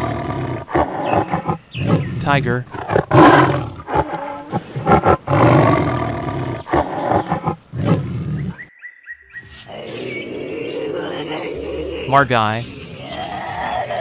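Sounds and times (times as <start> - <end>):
tiger roaring: 0.0 - 8.7, 9.7 - 14.0.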